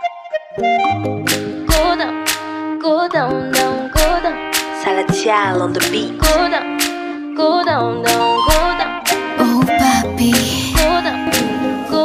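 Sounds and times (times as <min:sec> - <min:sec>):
sustained instrumental tones: 0:00.0 - 0:12.0
drum hits: 0:06.2 - 0:06.5.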